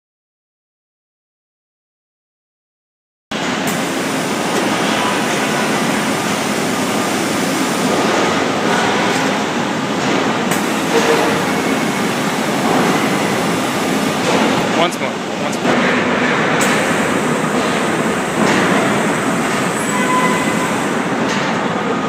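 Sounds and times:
industrial shop floor din: 3.3 - 22.0.

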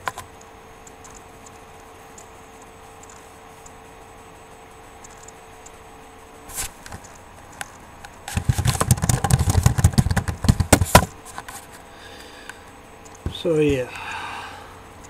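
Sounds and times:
faint steady hum: 0.0 - 15.0
rustling clicks and thumps: 6.5 - 11.8.

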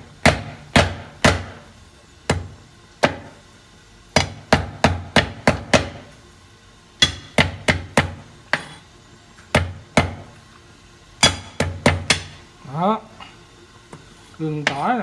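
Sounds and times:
cleaver chopping on wooden board: 0.2 - 1.6, 2.3 - 3.3, 4.1 - 6.1, 7.0 - 8.7, 9.5 - 10.3.

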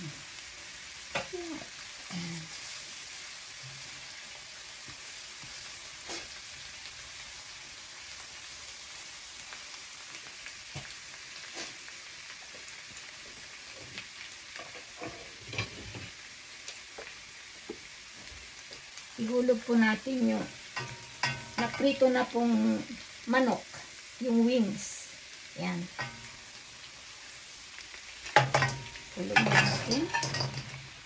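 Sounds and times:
garlic sizzling in oil: 0.0 - 31.0
spatula tapping and scraping pan: 20.7 - 22.0, 26.0 - 26.4, 28.3 - 30.8.

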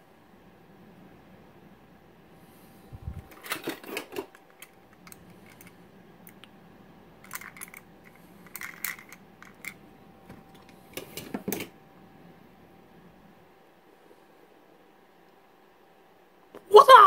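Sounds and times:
plastic toys clicking: 7.2 - 9.8.

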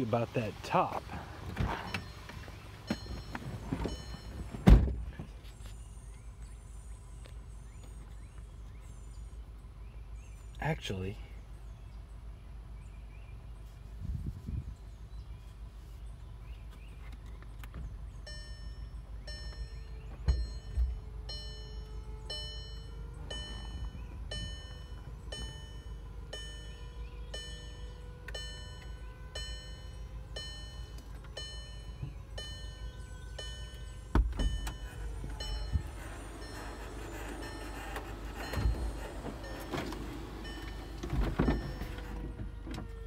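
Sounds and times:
dashboard warning chime: 1.8 - 4.7, 18.2 - 43.0
roof panels clunking: 31.1 - 43.0.

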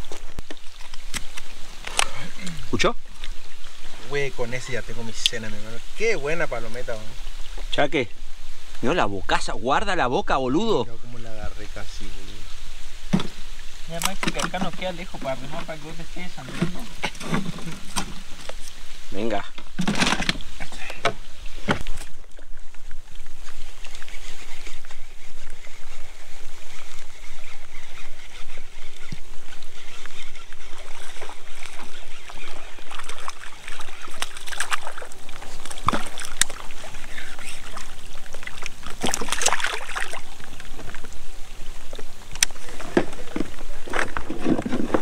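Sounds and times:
water lapping against kayak hull: 0.0 - 7.8, 11.5 - 45.0
splashing: 13.0 - 45.0
knocks on kayak: 13.1 - 13.4.

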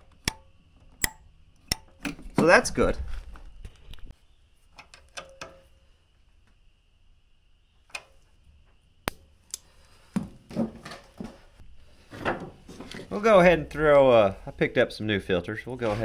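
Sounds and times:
handling and rustling noises: 15.7 - 16.0.

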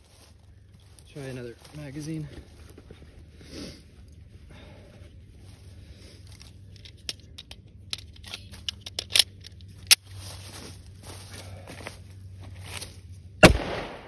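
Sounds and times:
pistol magazine clicks and rattles: 6.6 - 10.0
sharp loud pistol click: 13.4 - 14.0.

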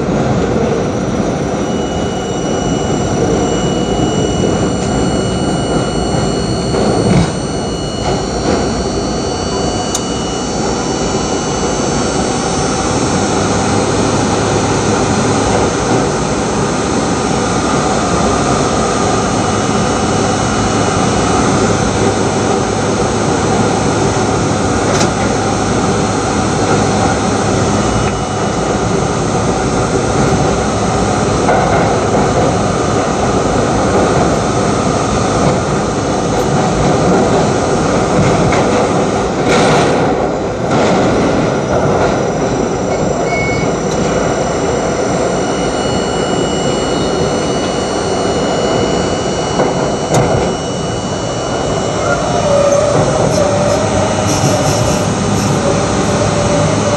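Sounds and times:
low steady hum: 0.0 - 24.4, 41.4 - 56.9
subway train roaring through tunnel: 0.0 - 56.9.

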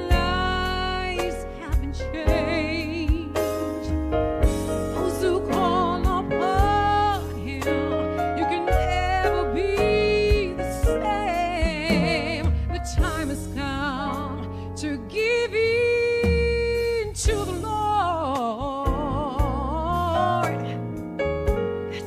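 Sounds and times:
woman singing gospel: 0.0 - 3.9, 4.9 - 20.8
bass and drum accompaniment: 0.0 - 22.0.

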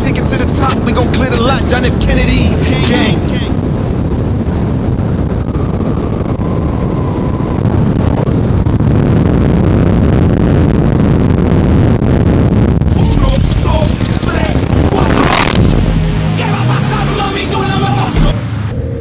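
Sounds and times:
wind and road noise: 0.0 - 19.0
car engines at speed: 14.0 - 19.0.

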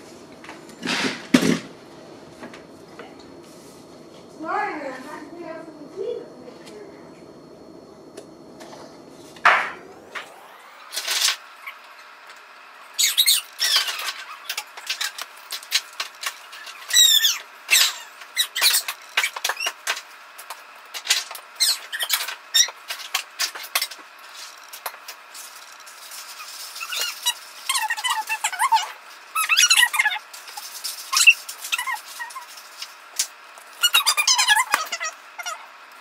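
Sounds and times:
squeaky scrape: 26.1 - 32.6.

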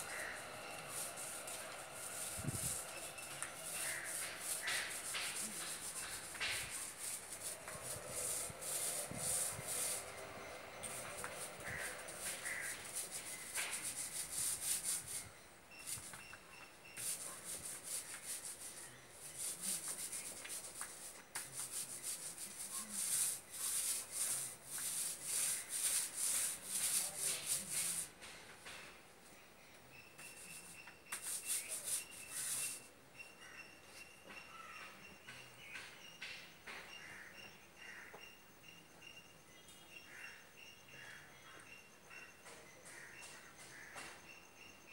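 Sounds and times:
paint roller rasping on wall: 0.0 - 16.3, 16.9 - 28.2, 30.2 - 32.9.

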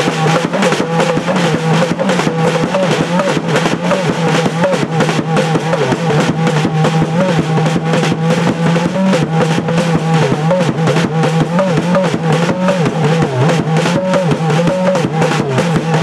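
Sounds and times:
fast dense drumming: 0.0 - 16.0.

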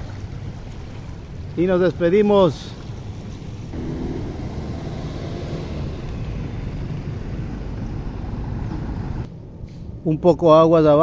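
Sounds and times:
flooded river rushing: 3.1 - 8.6
wind rumbling on microphone: 3.1 - 9.3.

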